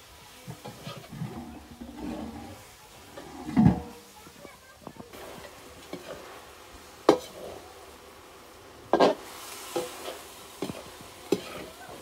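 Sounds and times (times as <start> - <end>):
faint sizzle: 0.0 - 12.0
metal ladle scraping wok: 0.4 - 4.2, 5.1 - 7.6, 8.9 - 12.0.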